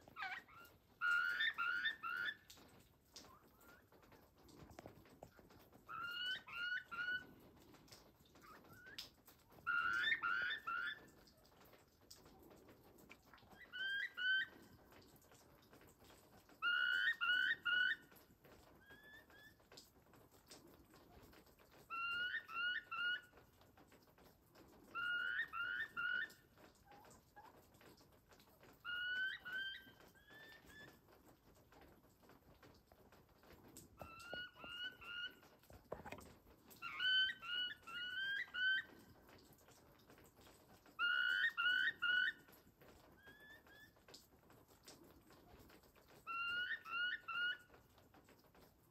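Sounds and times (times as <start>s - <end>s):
wild turkeys calling: 0.0s - 4.6s, 5.4s - 11.2s, 13.4s - 14.8s, 16.6s - 19.6s, 21.9s - 23.4s, 24.8s - 27.6s, 28.7s - 31.1s, 33.9s - 36.2s, 36.8s - 39.2s, 40.9s - 44.0s, 46.2s - 47.8s.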